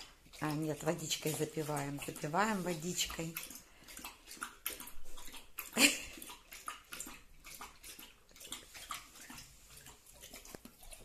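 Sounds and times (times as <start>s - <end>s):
dog lapping water: 0.0s - 11.0s.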